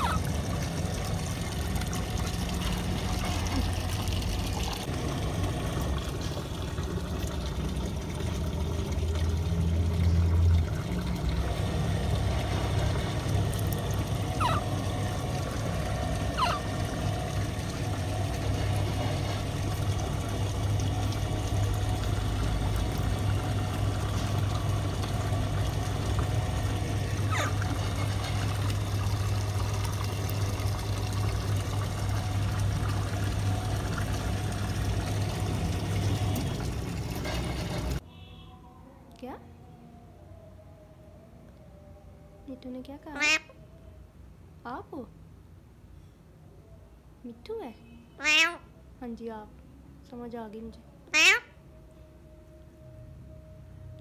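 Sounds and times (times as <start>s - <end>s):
water pouring into tank: 0.0s - 38.0s
low hum: 0.0s - 42.9s.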